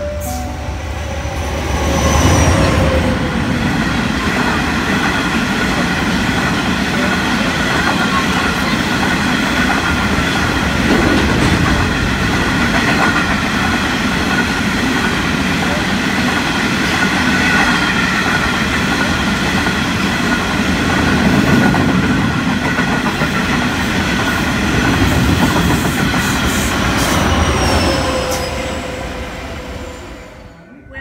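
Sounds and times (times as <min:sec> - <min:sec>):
train wheels rumbling on rail: 0:00.0 - 0:30.6
high ringing wheel squeal: 0:27.0 - 0:30.2.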